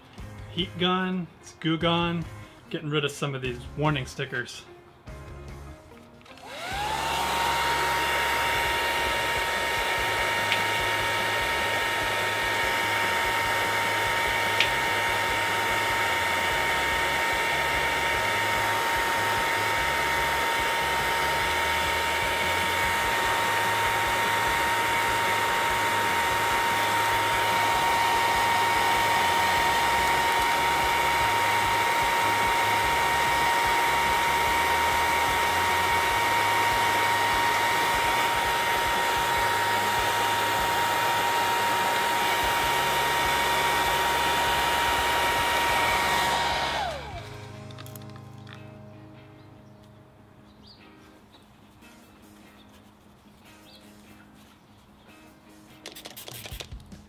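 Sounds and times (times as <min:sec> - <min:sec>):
heat gun motor whine: 0:06.2 - 0:48.6.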